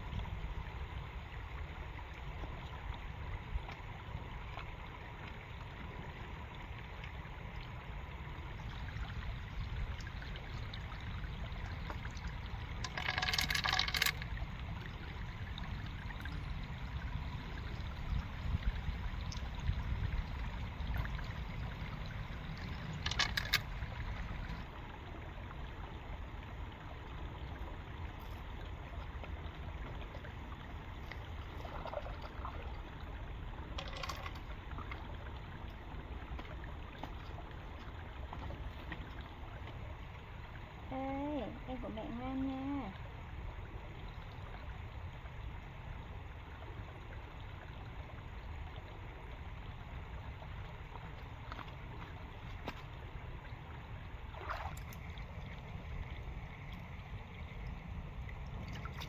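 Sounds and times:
water trickling over rocks: 0:00.0 - 0:59.0.

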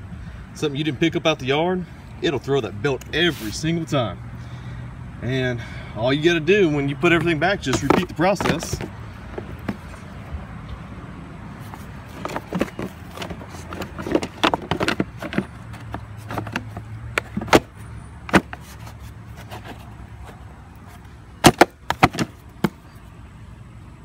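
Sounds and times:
plastic cover clicking and knocking: 0:07.7 - 0:09.8, 0:12.2 - 0:17.7.

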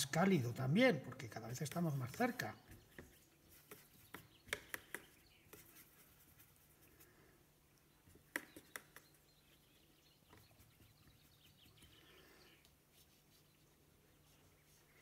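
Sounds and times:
paintbrush tapping metal palette: 0:01.5 - 0:06.0, 0:08.0 - 0:09.3.

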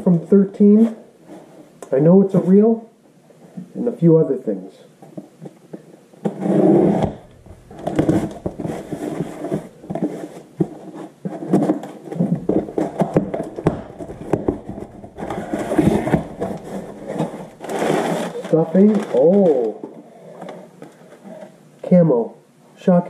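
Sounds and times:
cardboard flaps pulled back: 0:06.3 - 0:10.2, 0:11.6 - 0:19.2
paper stuffing crinkling: 0:07.0 - 0:11.0, 0:12.2 - 0:19.9.

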